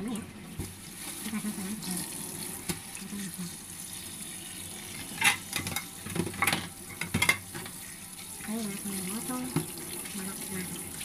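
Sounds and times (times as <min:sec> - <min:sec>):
kitchenware clattering: 0:04.8 - 0:08.6
kitchen handling sounds: 0:04.9 - 0:07.8.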